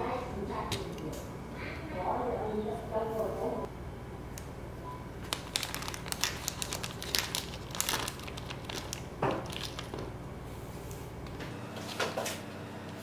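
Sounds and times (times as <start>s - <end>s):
plastic bag crinkling: 5.2s - 10.1s.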